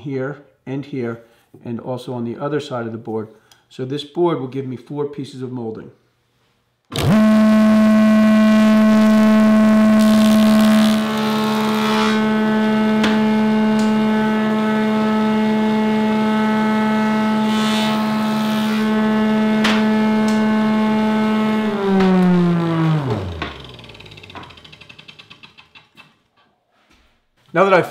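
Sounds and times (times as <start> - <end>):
table saw whine: 6.9 - 25.2.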